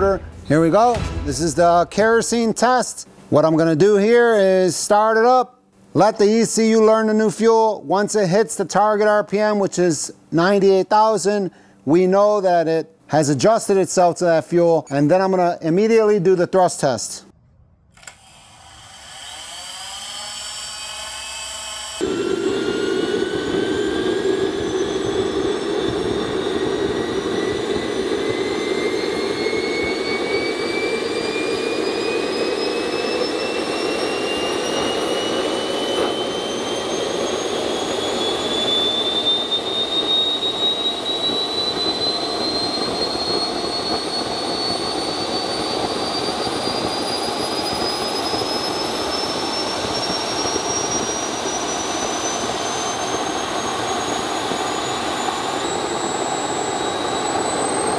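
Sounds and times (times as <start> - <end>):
exhaust rush: 0.0 - 3.2, 22.0 - 57.9
turbine engine whine rising: 0.0 - 5.4, 17.2 - 57.9.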